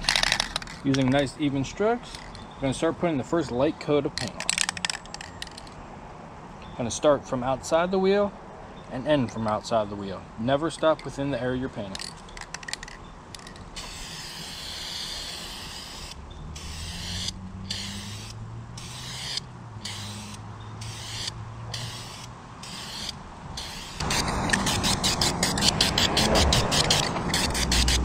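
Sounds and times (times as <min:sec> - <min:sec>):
spray can rattling when shaken: 0:00.0 - 0:01.0, 0:11.9 - 0:16.7, 0:19.9 - 0:28.0
spray can hissing: 0:13.8 - 0:28.0.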